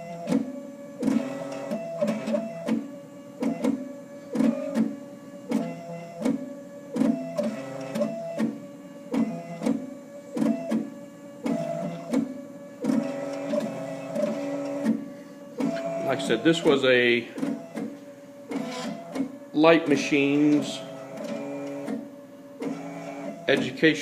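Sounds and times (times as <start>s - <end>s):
stepper motors whining: 0.0s - 24.0s
motor clicks: 11.4s - 15.0s, 15.6s - 16.8s, 20.5s - 22.0s.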